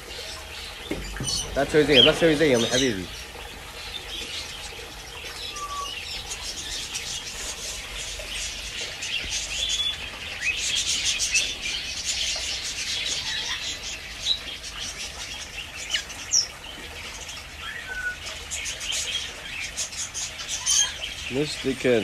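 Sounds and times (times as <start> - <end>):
birds chirping: 0.0 - 22.0
bird whistles: 5.4 - 6.1, 17.6 - 18.2.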